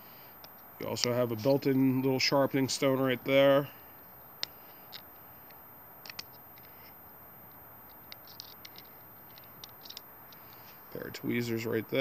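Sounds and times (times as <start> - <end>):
multitool clicks and scratches: 4.4 - 10.6
faint hiss: 10.1 - 12.0.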